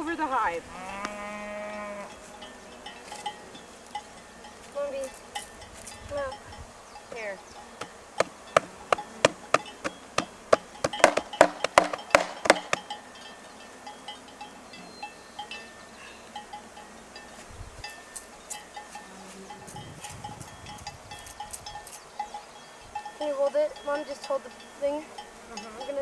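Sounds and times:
wooden box knocking: 8.2 - 12.9.

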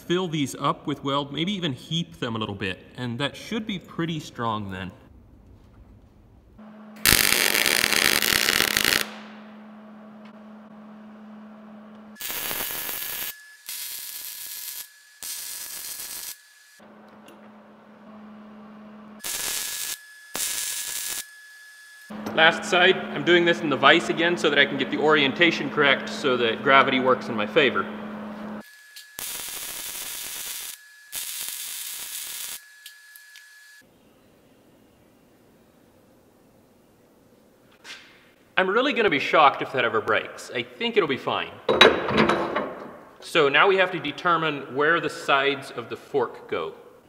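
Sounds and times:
low steady hum: 3.7 - 12.2
welder crackling hiss: 7.0 - 9.2, 12.2 - 16.8, 19.2 - 22.1, 28.6 - 33.8.

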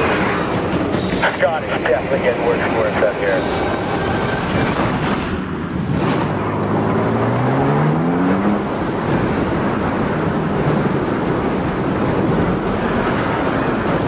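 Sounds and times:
blizzard wind and blowing snow: 0.0 - 14.0
pickup engine revving: 3.5 - 14.0.

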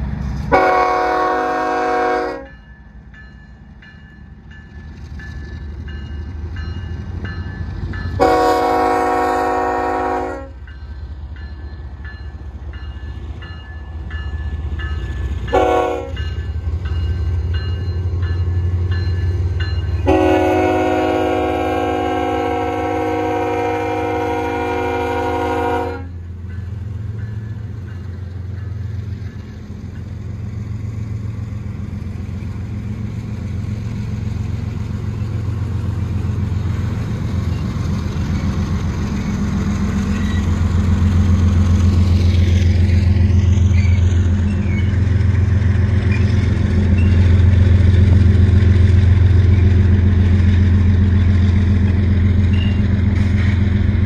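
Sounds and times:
freight train rumbling past: 0.0 - 54.0
locomotive horn chord: 0.5 - 2.6, 8.2 - 10.6, 15.5 - 16.2, 20.0 - 26.2.

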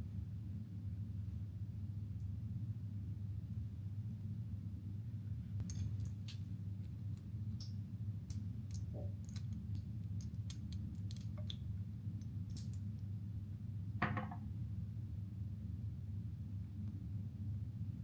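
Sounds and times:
steady low hum: 0.0 - 18.0
light clicks and taps: 5.6 - 12.8.

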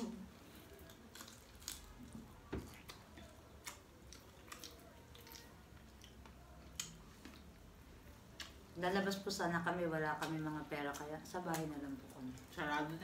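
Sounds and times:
eating by hand: 0.0 - 7.6.

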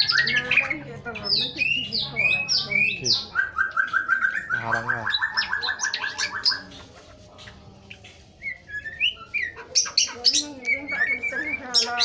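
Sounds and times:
songbird singing: 0.0 - 12.0.

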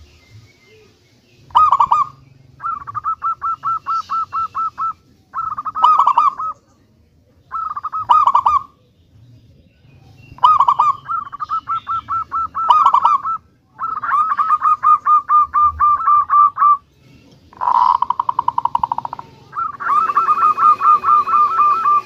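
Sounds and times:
dove cooing in fast runs: 1.5 - 6.6, 17.6 - 22.0.

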